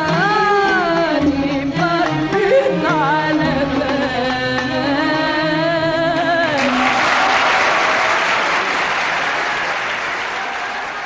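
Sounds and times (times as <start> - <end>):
audience applause: 6.6 - 11.0.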